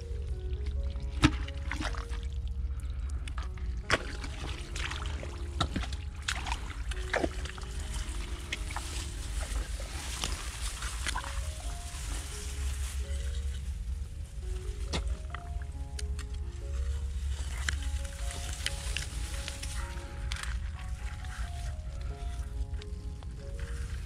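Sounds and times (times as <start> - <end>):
quiet background music: 0.0 - 24.0
splashing in shallow muddy water: 0.6 - 2.7, 3.3 - 13.6.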